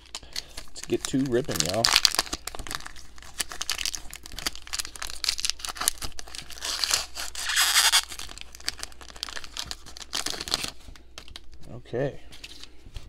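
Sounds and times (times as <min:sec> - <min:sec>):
wrapper being torn open: 0:00.0 - 0:11.6.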